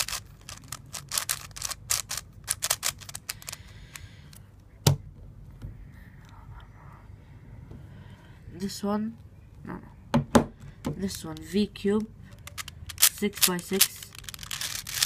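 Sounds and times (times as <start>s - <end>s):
puzzle cube clicking turns: 0.0s - 4.4s, 11.0s - 15.0s.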